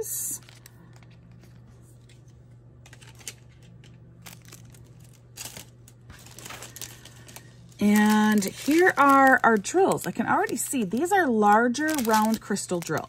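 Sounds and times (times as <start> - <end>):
plastic packaging crinkling: 0.3 - 13.0.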